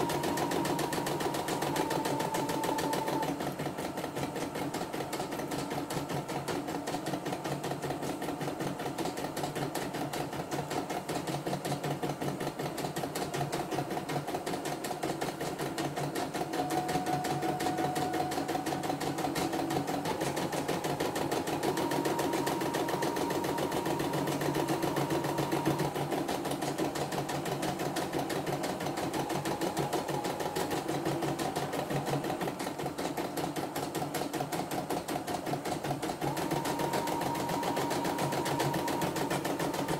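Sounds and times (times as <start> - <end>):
embroidery machine stitching: 0.0 - 39.9.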